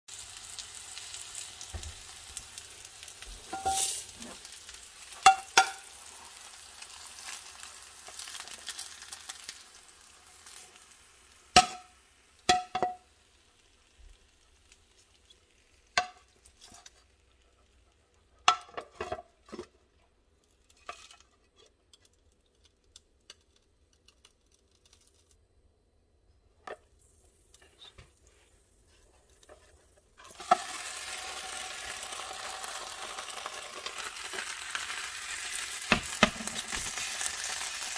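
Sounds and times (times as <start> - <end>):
potatoes and bacon sizzling: 0.1 - 23.8, 26.5 - 37.9
pan and plate clinking: 3.5 - 4.4, 5.1 - 6.1, 11.6 - 13.1.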